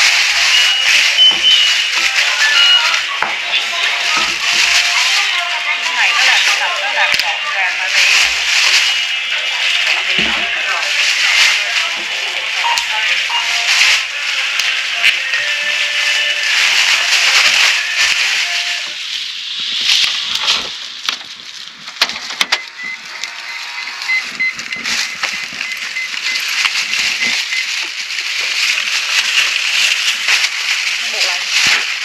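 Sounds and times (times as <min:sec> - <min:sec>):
plastic bags rustling: 0:00.0 - 0:32.0
rapid high beeps: 0:00.5 - 0:03.1, 0:22.5 - 0:26.5, 0:27.1 - 0:27.7.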